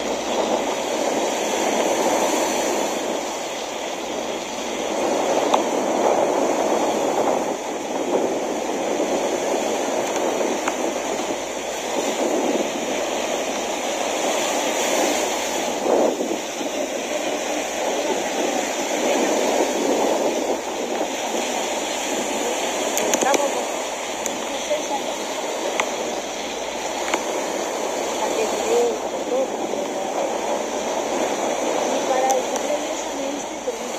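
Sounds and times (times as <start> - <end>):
waves breaking on beach: 0.0 - 33.9.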